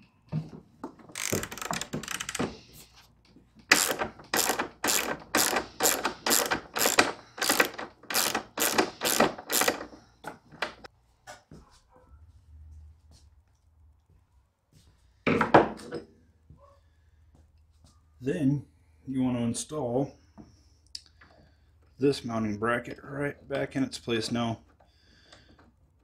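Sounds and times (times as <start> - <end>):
ratchet wrench clicking: 1.1 - 2.4, 3.7 - 9.9.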